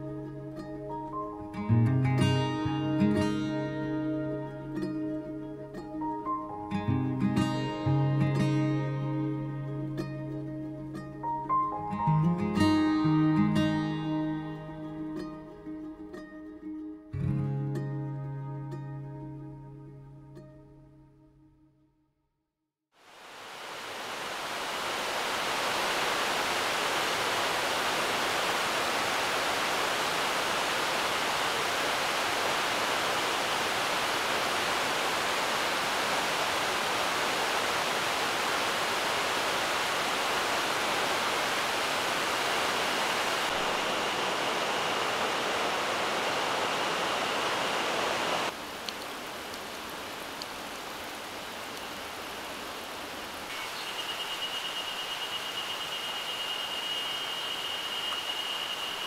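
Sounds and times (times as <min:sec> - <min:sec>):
stream rushing over rocks: 0:23.0 - 0:59.0
steady high-pitched tone: 0:53.6 - 0:59.0.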